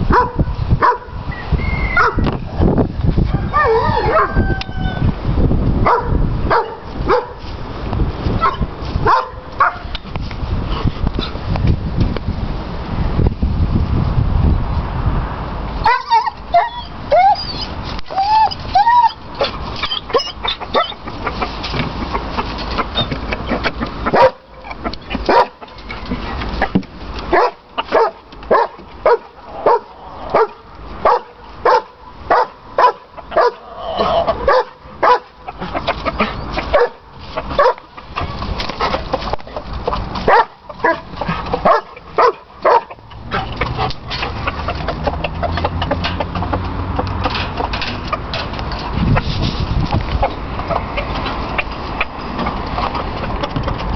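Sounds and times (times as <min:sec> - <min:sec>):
animal calling: 0:16.1 - 0:21.5.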